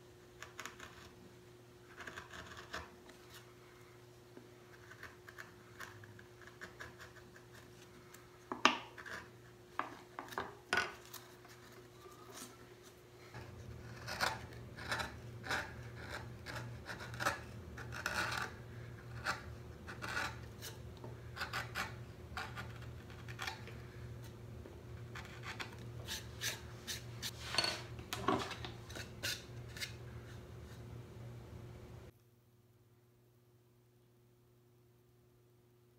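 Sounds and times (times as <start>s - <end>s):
low steady hum: 0.0s - 35.9s
gouge scraping wood: 1.9s - 3.5s, 13.3s - 23.7s, 25.0s - 27.5s.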